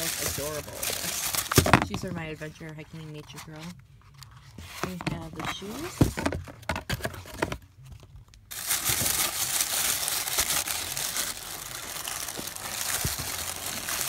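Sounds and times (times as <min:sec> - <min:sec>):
tissue paper crinkling: 0:00.0 - 0:02.4, 0:08.5 - 0:14.0.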